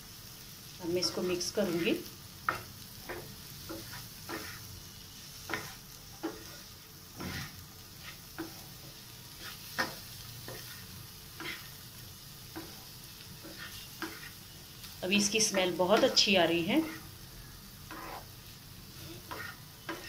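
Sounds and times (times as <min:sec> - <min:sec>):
food sizzling: 0:00.0 - 0:20.0
wooden spatula scraping pan: 0:01.0 - 0:04.7, 0:05.4 - 0:11.7, 0:12.6 - 0:14.4, 0:17.9 - 0:18.3, 0:18.9 - 0:20.0.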